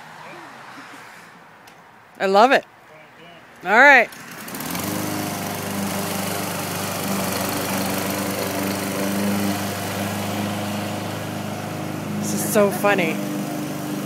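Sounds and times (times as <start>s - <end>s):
lawn mower running: 3.9s - 14.0s.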